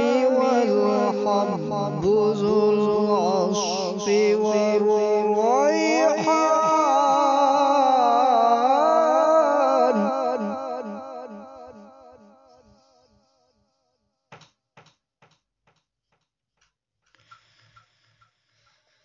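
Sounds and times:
man reciting melodically: 0.0s - 11.9s.

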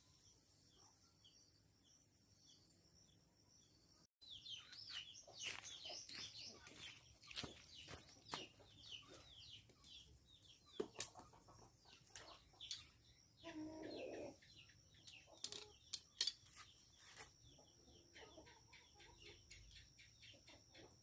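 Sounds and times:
birds chirping: 0.0s - 21.0s
chickens clucking: 10.7s - 15.8s, 17.5s - 21.0s.

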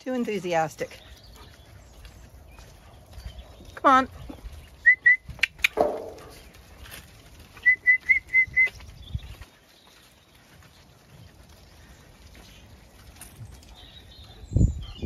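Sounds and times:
sharp clicks: 5.4s - 6.2s.

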